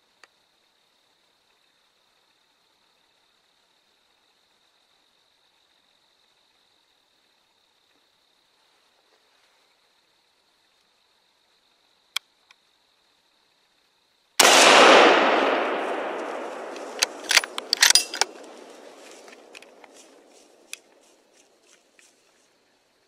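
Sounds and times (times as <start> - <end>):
rifle shot: 14.4 - 19.0
small clicks: 16.6 - 18.6
sharp clicks and rattles: 16.7 - 18.6.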